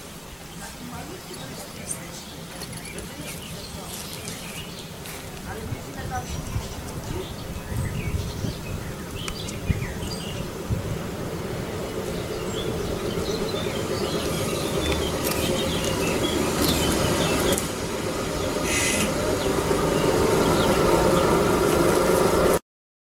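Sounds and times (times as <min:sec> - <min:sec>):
birds chirping: 0:00.0 - 0:22.5
diesel railbus engine running: 0:00.6 - 0:22.6
brief hiss: 0:18.6 - 0:19.2.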